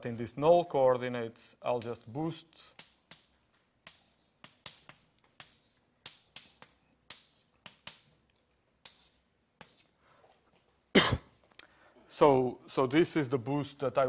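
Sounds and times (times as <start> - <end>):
chalk tapping and scratching: 1.7 - 10.7.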